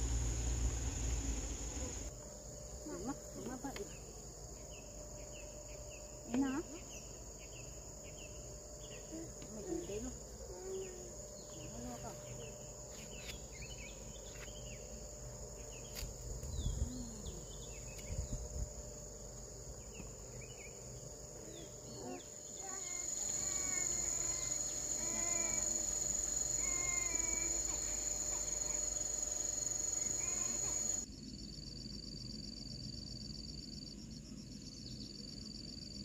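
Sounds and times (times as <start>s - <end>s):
birds chirping: 0.0s - 2.1s, 23.0s - 31.0s
insects buzzing: 0.0s - 36.0s.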